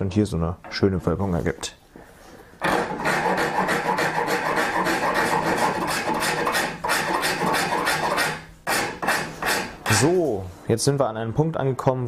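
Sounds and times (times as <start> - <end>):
hand rasp scraping horn: 2.6 - 10.2.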